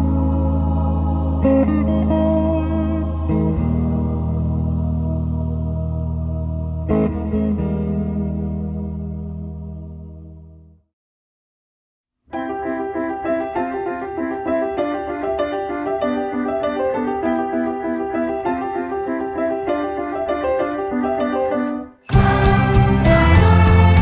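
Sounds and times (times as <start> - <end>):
piano playing repeated notes: 12.3 - 24.0
loud music track: 22.1 - 24.0.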